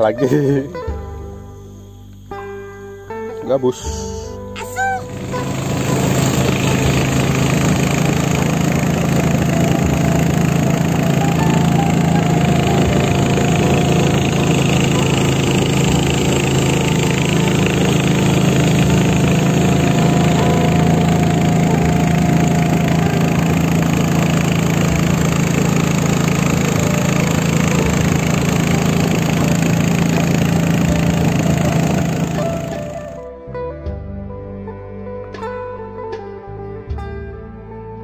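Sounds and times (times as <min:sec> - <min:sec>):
outboard engine running: 0:03.9 - 0:33.4.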